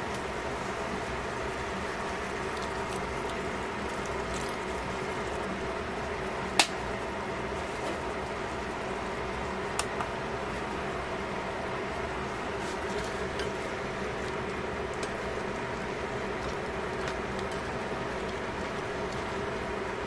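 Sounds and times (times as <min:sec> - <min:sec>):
chicken sizzling in a pan: 0:12.5 - 0:20.0.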